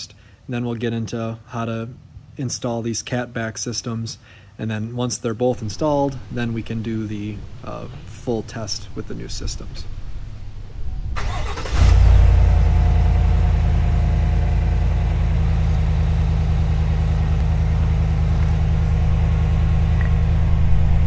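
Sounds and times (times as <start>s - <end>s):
engine cranking: 11.2s - 13.2s
engine idling loudly: 11.4s - 21.0s.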